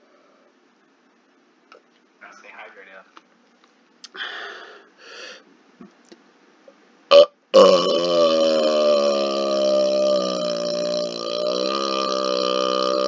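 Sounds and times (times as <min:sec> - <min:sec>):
man burping: 0:07.1 - 0:13.0.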